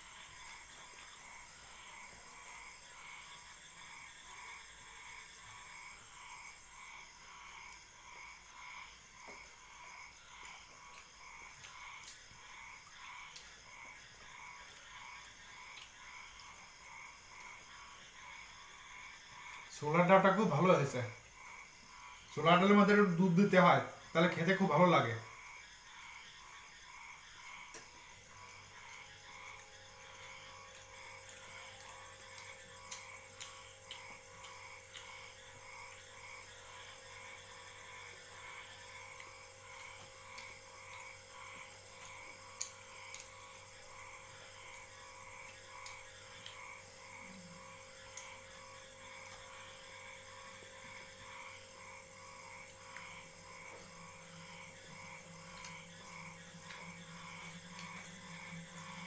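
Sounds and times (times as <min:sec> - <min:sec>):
frogs croaking: 0:00.0 - 0:59.0
steady hum: 0:00.0 - 0:59.0.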